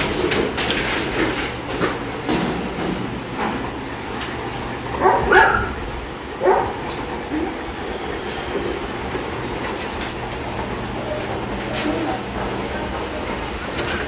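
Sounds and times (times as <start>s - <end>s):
dog barking: 5.0s - 7.5s.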